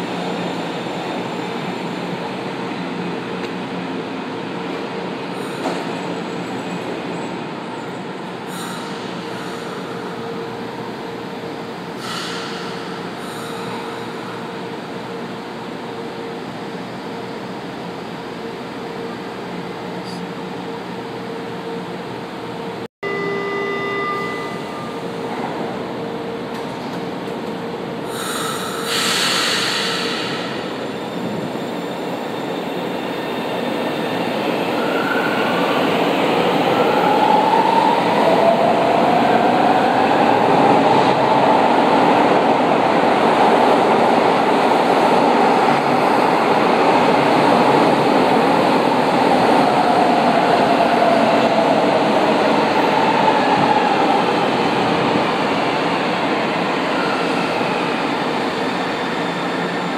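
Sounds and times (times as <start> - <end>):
train cars running noise: 0.0 - 59.9
air hiss: 28.1 - 30.6.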